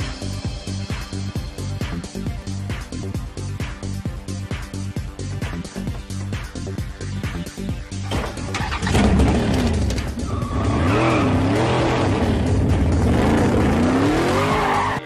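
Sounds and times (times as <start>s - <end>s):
car engine revving: 8.5s - 15.0s.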